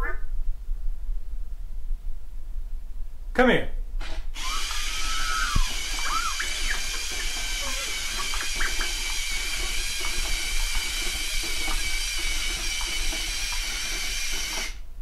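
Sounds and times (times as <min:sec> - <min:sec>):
toy motors whirring: 0:04.0 - 0:14.8.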